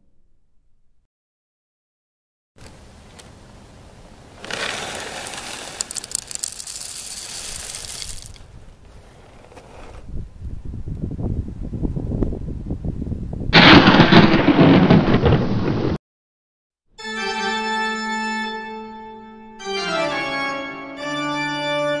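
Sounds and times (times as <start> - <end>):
organ chords: 17.0 - 22.0.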